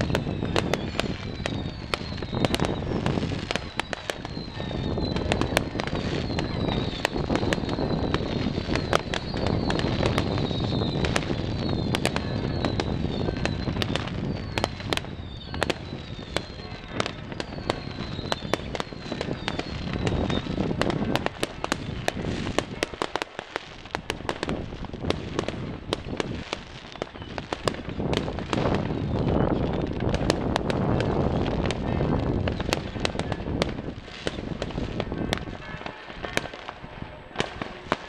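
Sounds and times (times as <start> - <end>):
falling firework whistles: 0.0 - 38.0
fireworks bangs and pops: 0.0 - 38.0.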